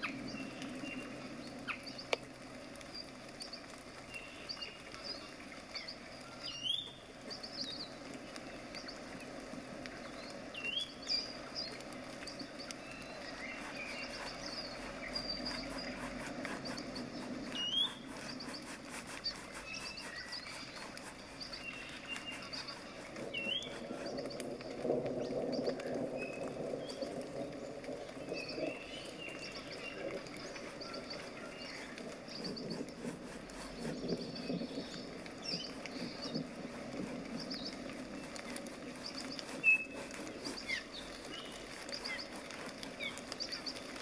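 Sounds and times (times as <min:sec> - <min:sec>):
small bird chirps: 0:00.0 - 0:02.2, 0:02.8 - 0:09.1, 0:10.0 - 0:27.5, 0:28.1 - 0:44.0
brush scrubbing paint on canvas: 0:11.7 - 0:44.0.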